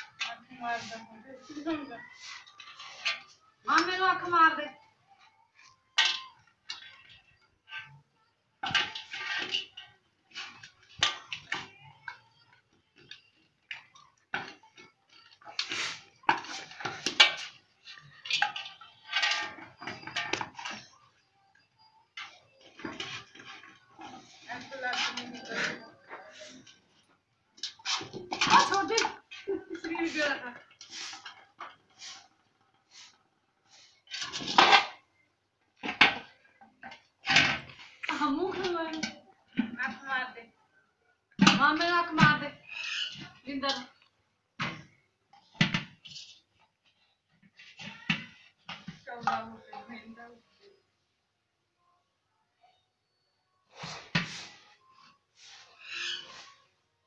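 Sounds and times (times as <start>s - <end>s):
iron pan scraping brick floor: 0.0s - 4.3s, 15.4s - 21.0s, 22.2s - 27.0s, 27.6s - 35.0s, 53.7s - 56.7s
metal basin scraping on brick: 22.2s - 27.0s, 55.4s - 56.7s.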